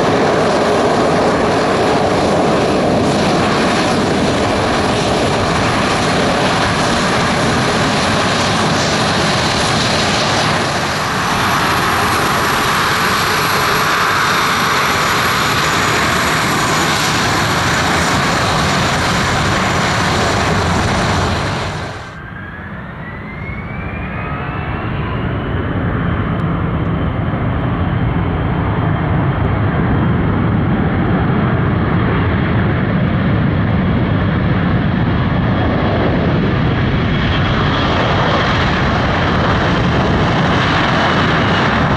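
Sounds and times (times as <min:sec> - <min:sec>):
jet engines running: 0:00.0 - 0:41.9
jet engines spooling up: 0:00.0 - 0:41.9.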